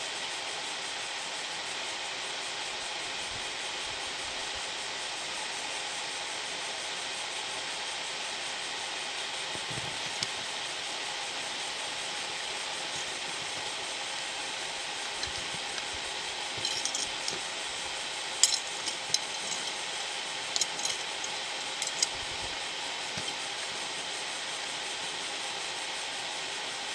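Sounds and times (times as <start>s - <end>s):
steady hiss: 0.0s - 26.9s
plastic parts clicking and clinking: 15.1s - 16.0s, 16.6s - 17.5s, 18.4s - 19.8s, 20.5s - 22.5s, 23.1s - 23.4s.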